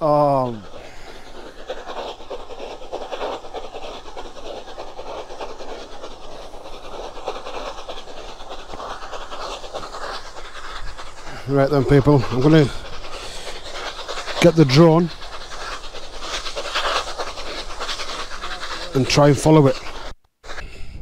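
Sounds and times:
steam train passing: 0.0 - 20.7.

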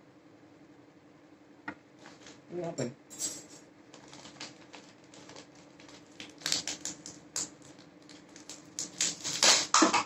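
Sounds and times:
faint steady hum: 0.0 - 10.0
packet crinkling and rustling: 2.0 - 2.4, 3.9 - 10.0.

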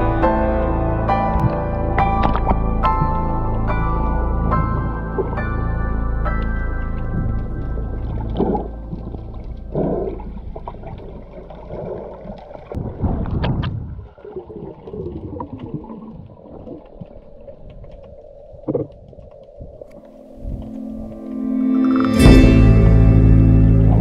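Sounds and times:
underwater rumble of water: 0.0 - 24.0
bubbling and gurgling: 6.4 - 21.2.

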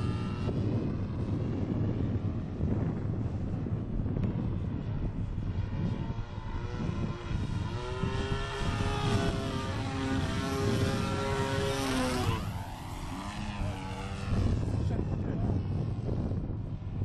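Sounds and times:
low noisy rumble: 0.0 - 17.0
model plane engine and propeller: 0.0 - 17.0.

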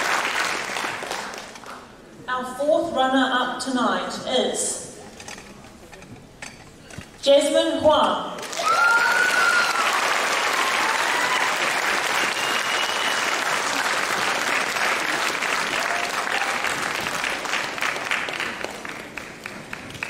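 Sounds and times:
audience applauding: 0.0 - 1.9, 8.4 - 20.0.

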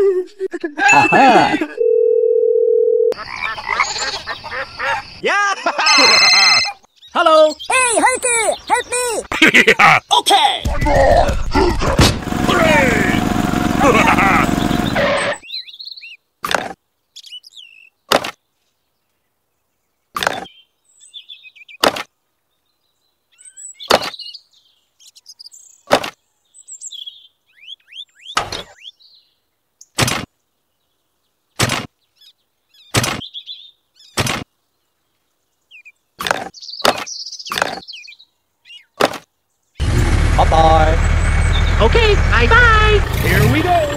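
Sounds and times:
faint bird chirping: 3.2 - 11.6, 16.9 - 39.8, 41.0 - 41.9.

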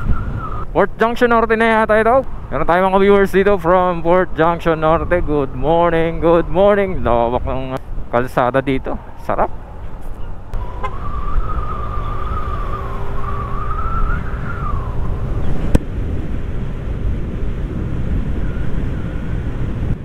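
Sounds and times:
wind rushing over microphone: 0.0 - 20.0
wavering whine: 10.6 - 20.0.

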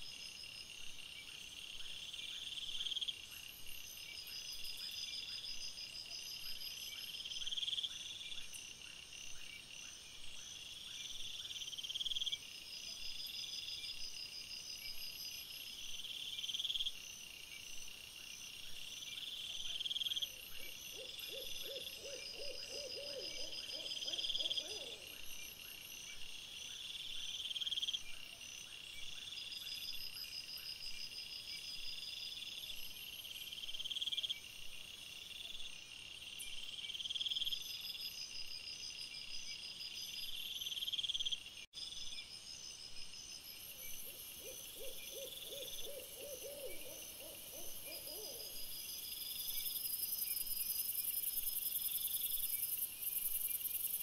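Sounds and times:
crickets chirping: 0.0 - 54.0.

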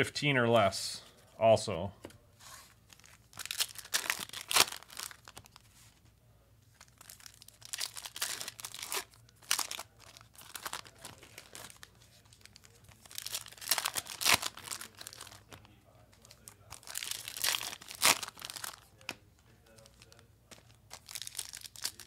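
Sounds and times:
card pack wrappers tearing: 2.9 - 5.6, 6.8 - 15.6, 16.2 - 22.0.

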